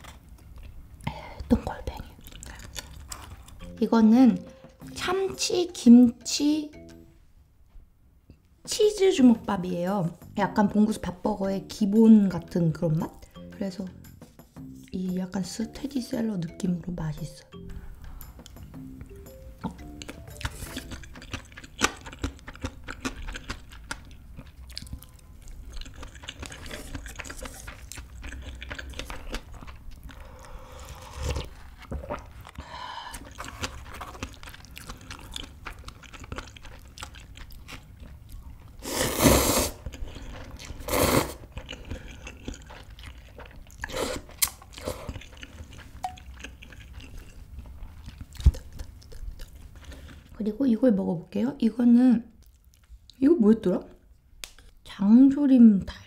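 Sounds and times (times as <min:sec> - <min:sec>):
close chewing with mouth clicks: 0:01.8 - 0:03.7, 0:19.6 - 0:50.4, 0:52.3 - 0:53.2
noodle slurps: 0:38.8 - 0:39.8, 0:40.8 - 0:41.5.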